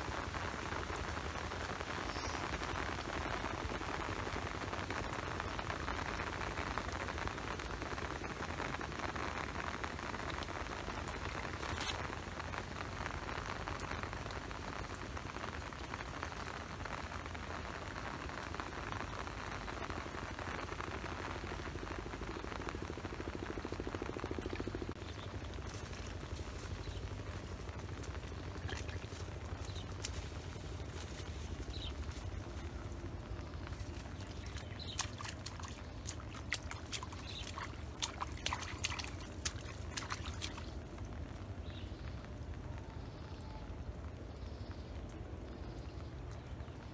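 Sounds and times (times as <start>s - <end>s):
rain pattering: 0.0s - 46.9s
steady low rumble: 16.6s - 46.9s
hands squelching in soft mud: 28.4s - 40.8s.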